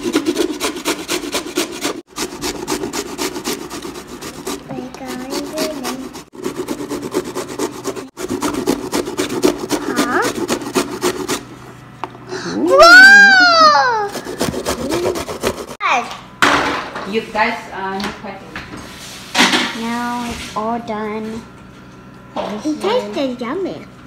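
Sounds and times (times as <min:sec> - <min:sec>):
vegetables rasping on grater: 0:00.0 - 0:11.6, 0:13.8 - 0:15.8.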